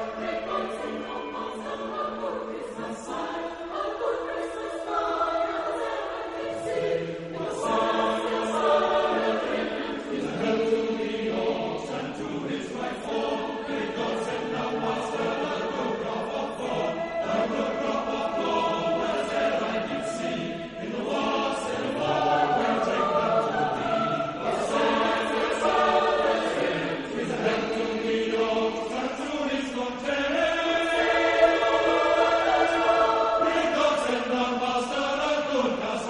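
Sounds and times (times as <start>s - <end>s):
choir singing a carol: 0.0s - 36.0s.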